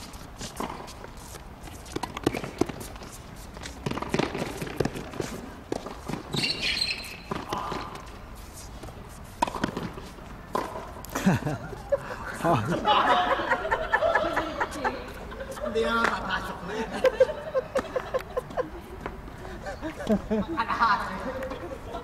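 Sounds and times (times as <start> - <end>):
players' footsteps: 0.0 - 22.0
racket striking tennis ball: 1.8 - 3.0, 3.6 - 8.2, 9.3 - 11.0
ball bouncing on hard court: 1.9 - 2.9, 3.8 - 8.1, 9.4 - 10.9.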